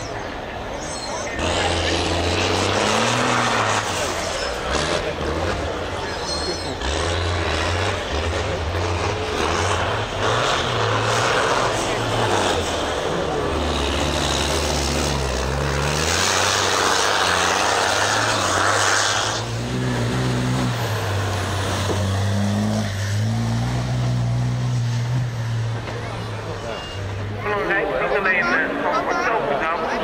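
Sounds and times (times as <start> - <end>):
truck diesel engines revving: 0.0 - 30.0.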